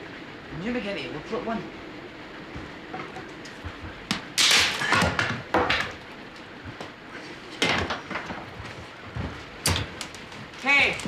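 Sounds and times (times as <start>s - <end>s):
wooden planks knocking: 3.0s - 6.0s.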